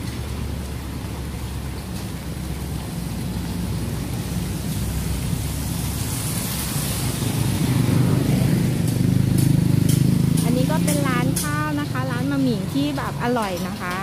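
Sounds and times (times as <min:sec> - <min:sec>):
tyre hiss on wet road: 0:00.0 - 0:10.4
vehicle engines running: 0:00.0 - 0:14.0
vehicle passing close by: 0:03.1 - 0:13.2.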